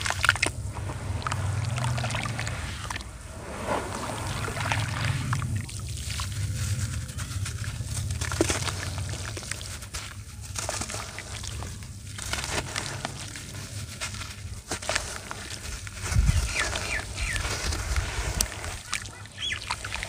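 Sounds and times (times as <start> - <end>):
steady low hum: 0.0 - 12.9
dirt crumbling by hand: 0.0 - 20.0.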